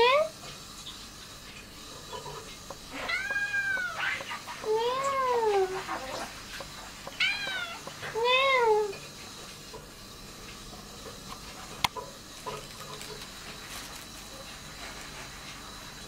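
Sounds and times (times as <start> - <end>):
kitten meowing: 2.9 - 5.8, 7.2 - 9.0.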